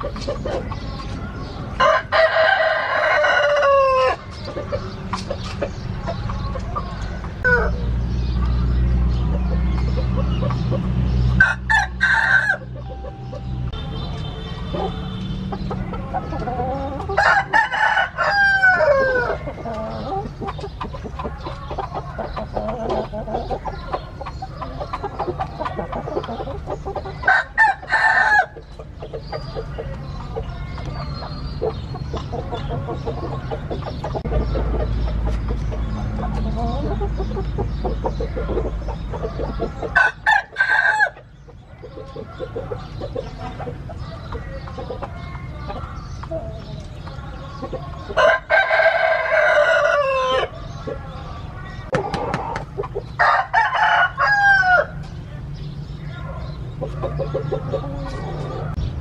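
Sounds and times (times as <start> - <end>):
roosters crowing: 0.0 - 58.8
chickens clucking and calling: 0.0 - 59.0.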